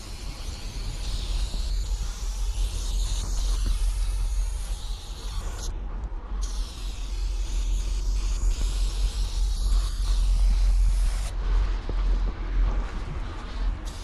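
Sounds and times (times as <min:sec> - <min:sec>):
spray paint can hissing: 0:00.0 - 0:05.7, 0:06.4 - 0:11.3
low rumble: 0:08.3 - 0:14.0.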